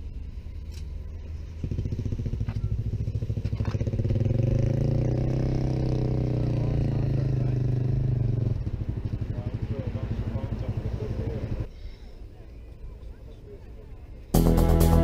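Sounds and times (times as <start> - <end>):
vehicle engine running: 1.0 - 11.7.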